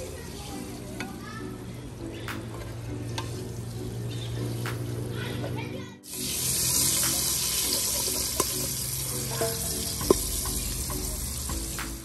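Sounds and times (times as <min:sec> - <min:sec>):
oil sizzling in a pot: 0:00.0 - 0:12.0
metal ladle clicking on pot: 0:08.0 - 0:08.6.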